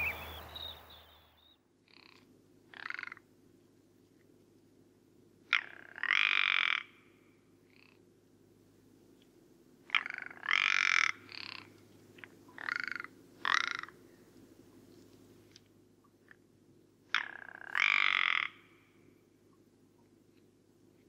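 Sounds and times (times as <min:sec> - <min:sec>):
bird croaking calls: 0:00.0 - 0:03.2, 0:05.5 - 0:07.0, 0:09.9 - 0:11.8, 0:12.5 - 0:14.0, 0:17.1 - 0:19.0.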